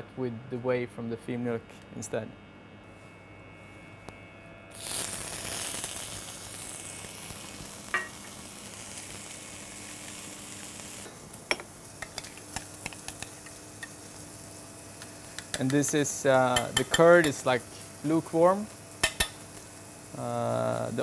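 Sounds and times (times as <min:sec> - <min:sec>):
lettuce sizzling in hot oil: 0:04.8 - 0:21.0.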